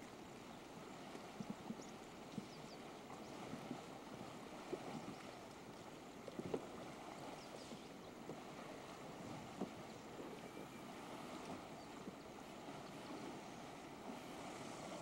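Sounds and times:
river water lapping and splashing: 0.0 - 15.0.

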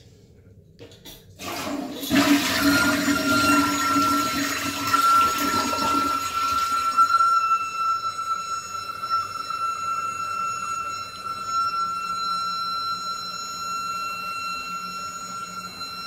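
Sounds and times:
toilet flushing: 1.4 - 7.5
high whistling squeak: 2.2 - 16.0.

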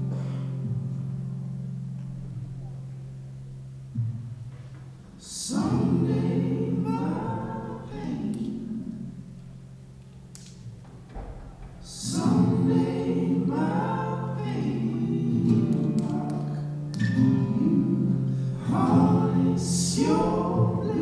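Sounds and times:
person singing sustained phrases: 5.2 - 9.2, 11.8 - 21.0.

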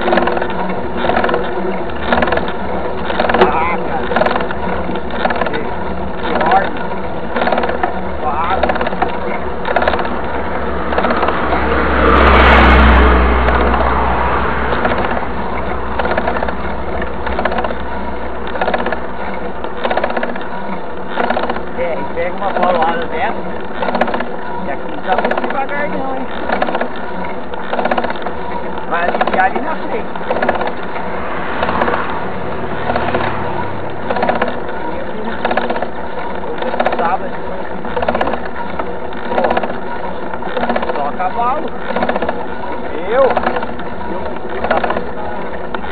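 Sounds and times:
bike freehub ticking: 0.0 - 45.9
wind: 0.0 - 45.9.

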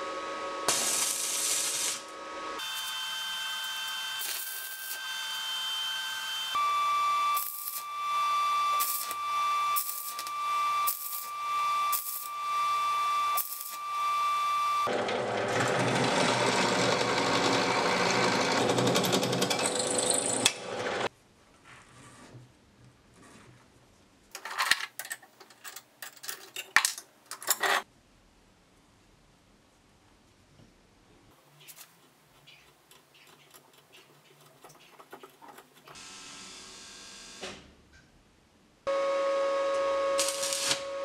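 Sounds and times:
welding arc crackling: 0.7 - 6.5, 7.3 - 7.9, 8.7 - 12.4, 13.2 - 13.8, 40.1 - 41.0.

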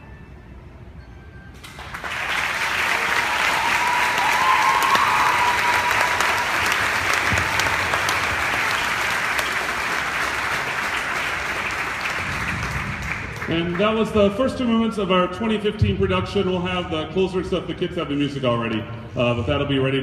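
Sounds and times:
audience applauding: 1.6 - 14.1.

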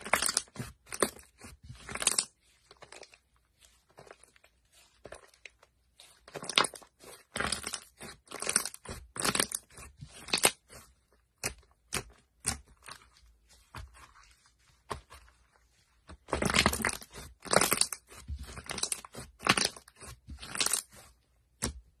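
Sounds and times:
slime crackling and popping: 6.3 - 10.8, 16.3 - 21.8.

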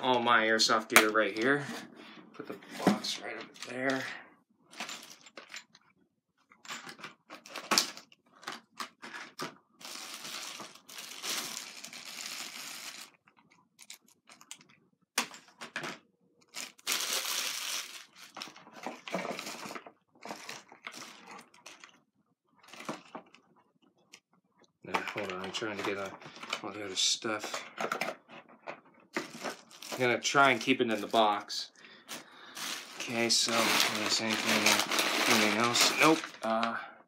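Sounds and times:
packaging rustling and crinkling: 6.9 - 14.8, 16.4 - 22.0, 22.6 - 23.7, 24.9 - 36.8
clicks and knocks of boxes: 27.4 - 30.1.

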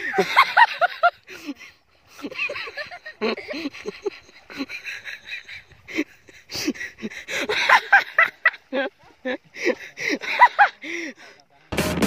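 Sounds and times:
people laughing: 0.0 - 11.4
people talking: 7.6 - 11.7.

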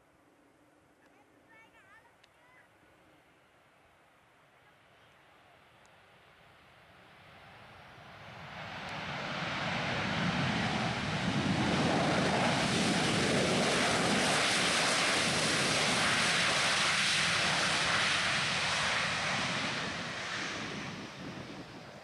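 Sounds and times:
jet engines roaring: 7.4 - 22.0.

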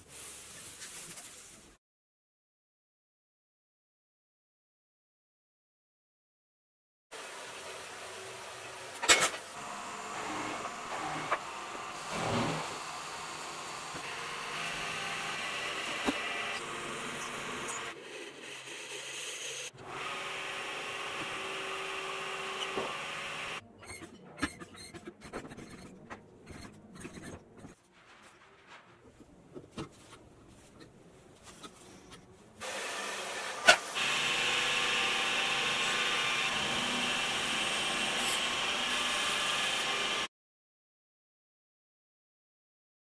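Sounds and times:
bandsaw cutting metal: 9.0 - 23.6, 32.6 - 40.3.

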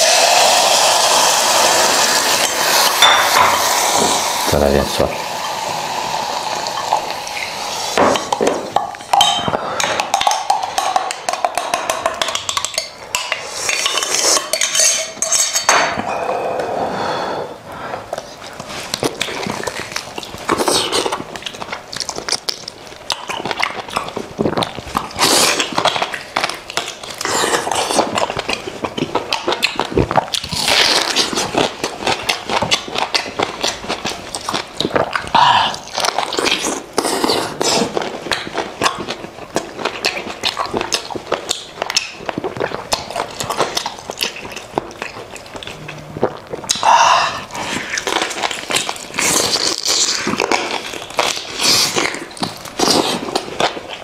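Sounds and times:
close-miked eating and chewing: 0.0 - 16.7, 17.6 - 54.0
metal spoon clinking in glass jug: 9.1 - 9.6.

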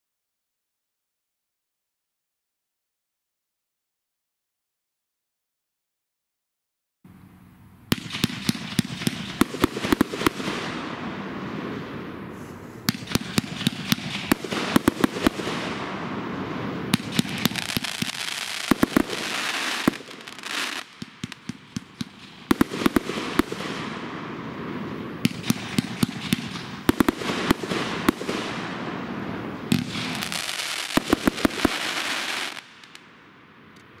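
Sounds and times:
fireworks crackling: 7.9 - 33.8.

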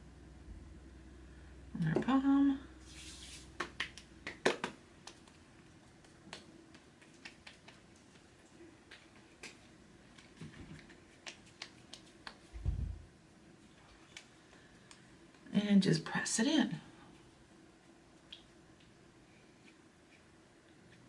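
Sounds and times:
hands patting face: 3.0 - 5.4, 6.0 - 13.0.

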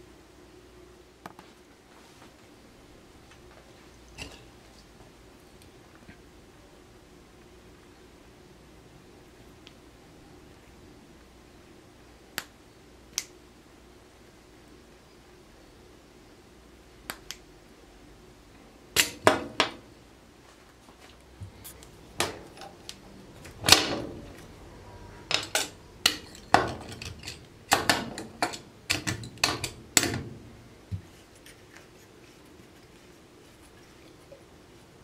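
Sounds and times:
metal valve clicks and knocks: 25.3 - 30.3.

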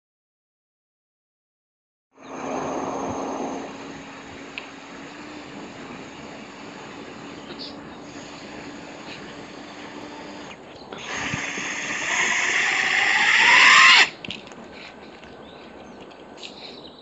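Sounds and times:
motor whine rising in pitch: 2.2 - 14.2
copter motors whirring: 2.2 - 14.3.

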